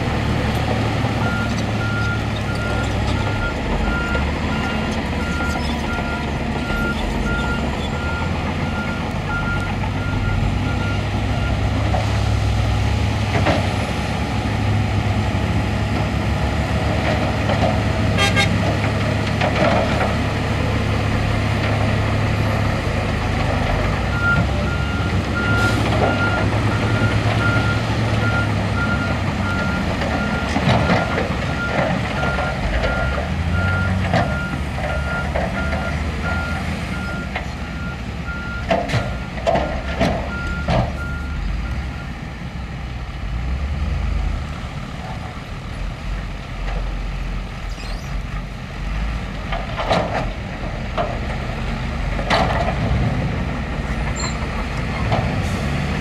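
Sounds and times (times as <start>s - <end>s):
heavy diesel engines running: 0.0s - 56.0s
truck reversing beeper: 1.1s - 12.3s, 24.1s - 39.4s, 40.2s - 42.2s, 54.2s - 54.5s
knocks and clanks: 38.6s - 41.0s, 52.1s - 53.3s.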